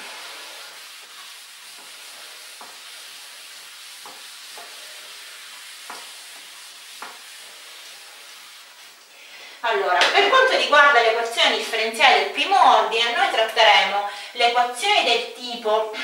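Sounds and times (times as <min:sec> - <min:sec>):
eraser rubbing on whiteboard: 0:00.8 - 0:09.0.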